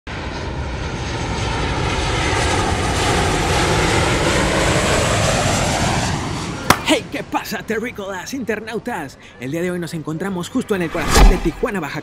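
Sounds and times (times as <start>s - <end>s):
airplane engine running: 0.1s - 9.4s.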